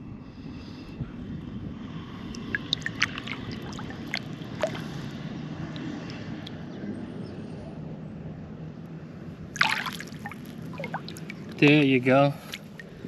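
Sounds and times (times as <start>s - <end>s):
water splashing and dripping: 2.3s - 5.0s, 9.6s - 13.0s.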